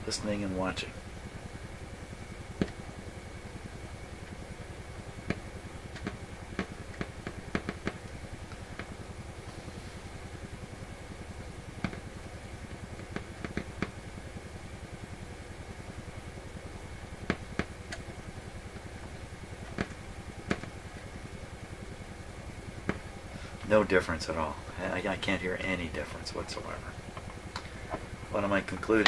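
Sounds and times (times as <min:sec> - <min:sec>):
sharp clicks and crackles: 0:05.2 - 0:08.9.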